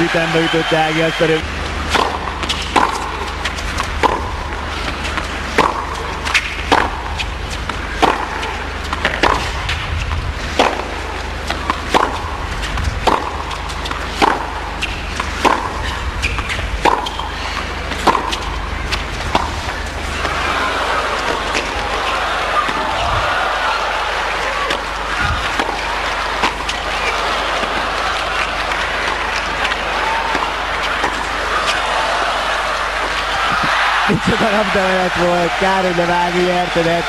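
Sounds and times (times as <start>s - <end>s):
tennis racket hitting ball: 1.8s - 23.0s, 24.3s - 28.4s, 29.0s - 32.2s
tennis ball bouncing on court: 1.9s - 20.4s, 24.6s - 25.8s, 29.1s - 31.8s.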